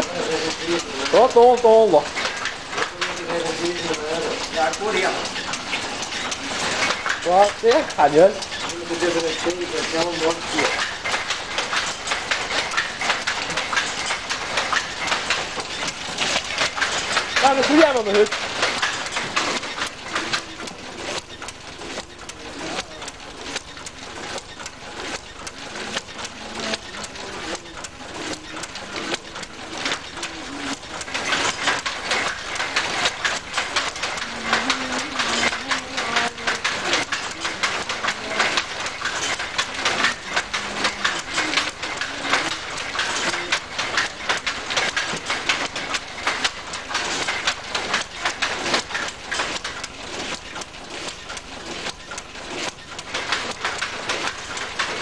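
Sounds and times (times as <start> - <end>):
loom clattering: 0.0 - 55.0.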